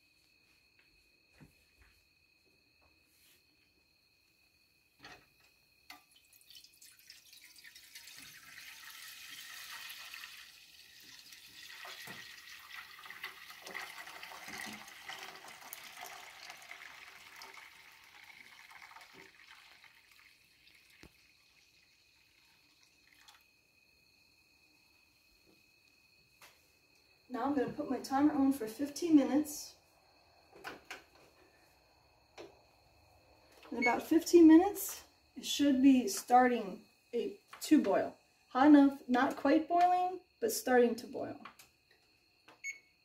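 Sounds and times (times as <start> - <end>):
milk pouring into a pot: 5.9 - 23.5.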